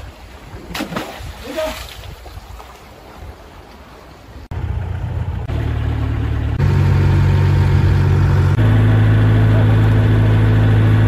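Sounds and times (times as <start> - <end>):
boat engine droning: 4.5 - 11.0.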